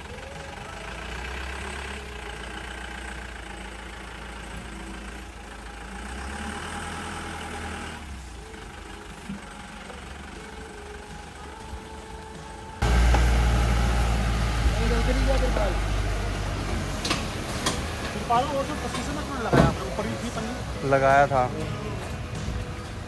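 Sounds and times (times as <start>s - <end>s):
truck diesel engine at low revs: 0.0s - 23.0s.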